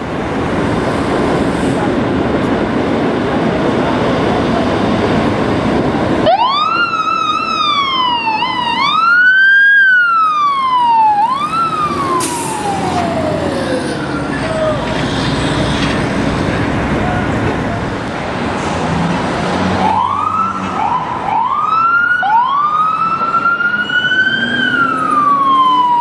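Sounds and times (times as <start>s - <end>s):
heavy traffic: 0.0s - 26.0s
fire engine siren: 5.7s - 18.4s, 19.1s - 26.0s.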